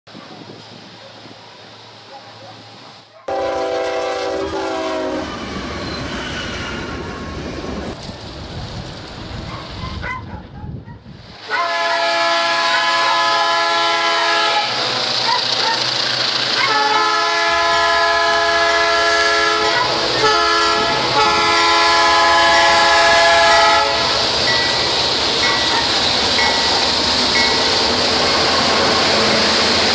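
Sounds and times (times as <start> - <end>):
locomotive engine and wheel rumble: 0.1 - 11.4, 12.9 - 29.9
locomotive air horn blasts: 3.3 - 5.4, 11.5 - 14.8, 16.6 - 24.2.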